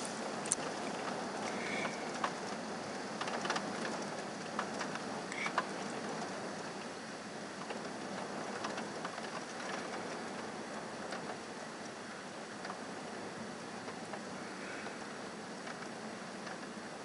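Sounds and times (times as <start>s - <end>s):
heavy rain hissing: 0.0s - 17.0s
raindrops ticking on a surface: 7.6s - 12.0s.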